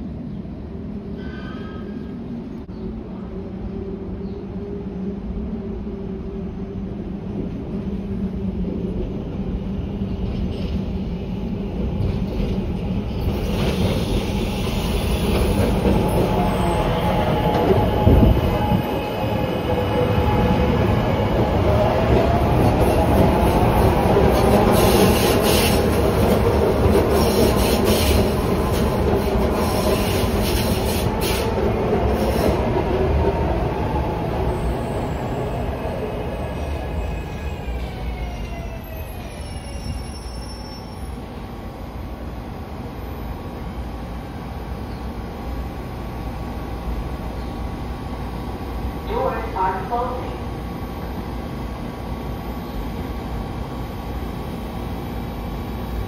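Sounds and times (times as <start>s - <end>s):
subway train hum: 0.0s - 56.0s
wheel squeal: 38.9s - 41.2s.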